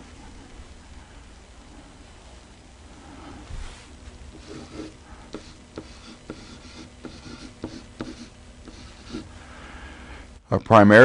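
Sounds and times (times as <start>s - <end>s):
pen tapping whiteboard: 4.3s - 9.3s
stylus scratching on whiteboard: 4.3s - 9.3s.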